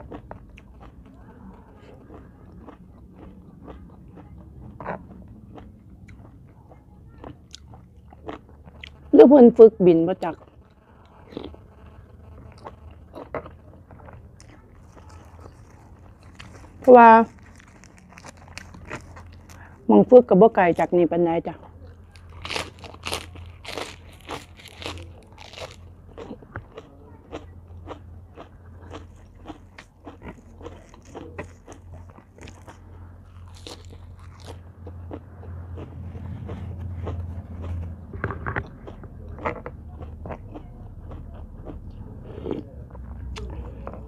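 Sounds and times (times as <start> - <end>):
lettuce crunching: 0.0 - 9.1, 10.2 - 19.9, 21.6 - 44.0
steady low hum: 0.0 - 44.0
wet chewing and mouth smacks: 12.5 - 19.8, 21.6 - 44.0.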